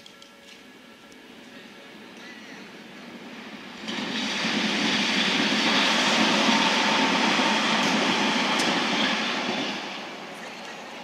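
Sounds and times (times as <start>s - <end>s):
train wheels rushing on rails: 0.5s - 11.0s.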